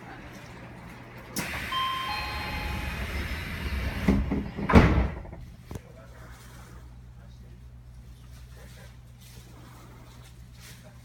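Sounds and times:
air hiss of train doors: 1.4 - 5.2
train doors thumping shut: 1.4 - 5.6
brief ringing tones: 1.6 - 3.4.

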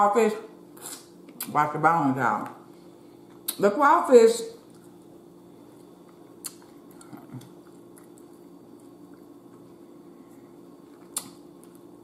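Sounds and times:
low steady hum: 0.0 - 12.0
person chewing: 0.8 - 1.5, 4.6 - 11.9.

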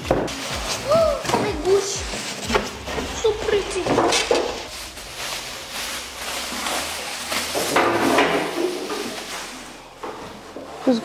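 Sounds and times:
plastic bag crinkling: 0.0 - 11.0.

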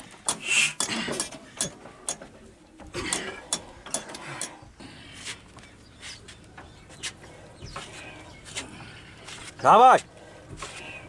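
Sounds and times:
hand crank metallic clicks and clatter: 0.3 - 2.2.

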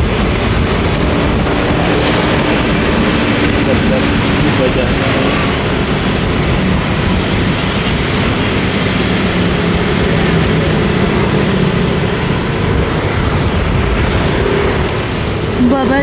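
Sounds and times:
road and wind noise: 0.0 - 16.0.

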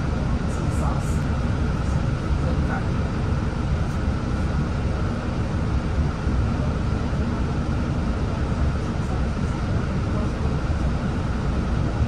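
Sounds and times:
bus engine idling: 0.0 - 12.0.

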